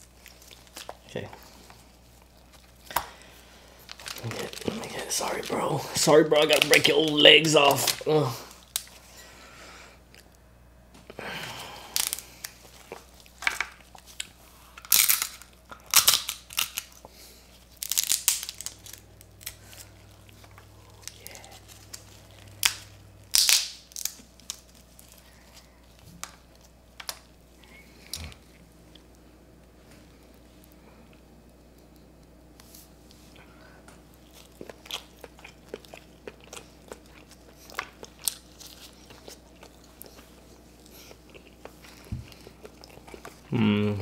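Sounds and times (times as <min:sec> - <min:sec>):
crab shell cracking: 0:06.4 - 0:09.0, 0:11.9 - 0:27.3.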